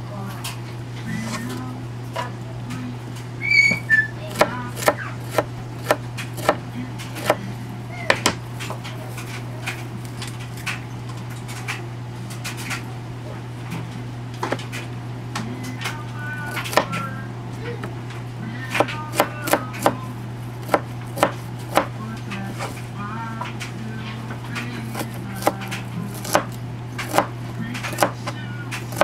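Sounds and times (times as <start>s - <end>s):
steady low hum: 0.0s - 29.0s
knife chopping on plastic board: 4.3s - 7.4s, 16.5s - 17.0s, 18.7s - 20.0s, 20.6s - 22.0s, 24.6s - 29.0s.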